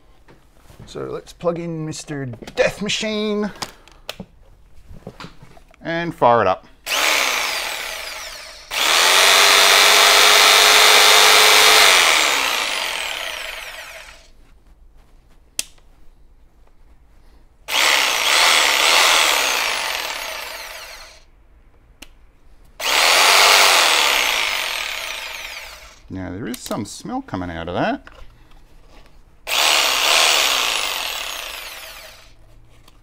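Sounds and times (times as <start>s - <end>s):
falling motor whine: 6.9s - 14.2s, 29.5s - 32.3s
jigsaw running: 6.9s - 14.3s, 17.7s - 21.2s, 22.8s - 26.0s, 29.5s - 32.4s.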